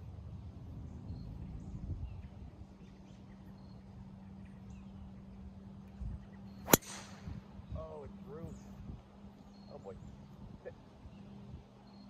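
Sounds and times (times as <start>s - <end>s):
golf ball struck by driver: 6.6s - 7.4s.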